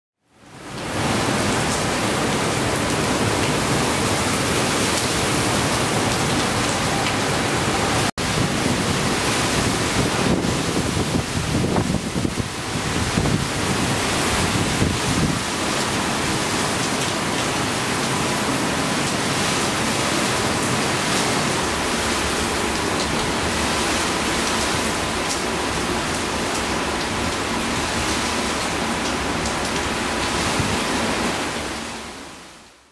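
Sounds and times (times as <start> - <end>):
heavy rain pouring: 0.3 - 32.9
wind buffeting microphone: 8.2 - 15.5.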